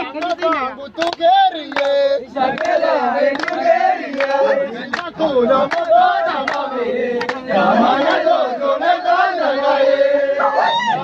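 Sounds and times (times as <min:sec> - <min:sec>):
hand claps: 0:00.2 - 0:08.2
group singing: 0:01.2 - 0:11.0.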